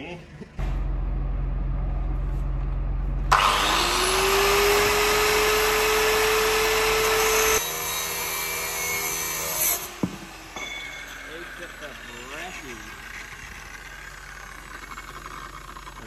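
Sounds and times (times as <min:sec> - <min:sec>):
low motor hum: 0:00.0 - 0:07.6, 0:11.2 - 0:16.0
angle grinder cutting steel: 0:03.3 - 0:16.0.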